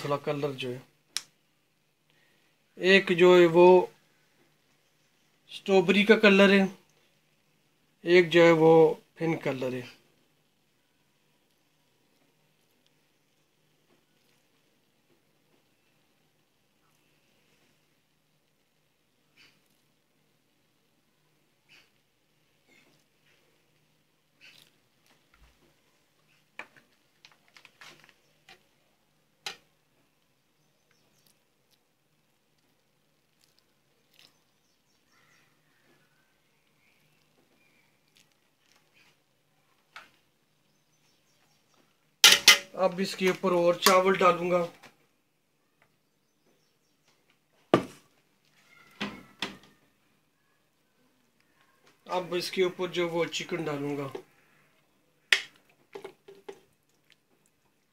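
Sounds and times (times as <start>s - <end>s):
utensils tapping metal pot: 42.2s - 42.8s.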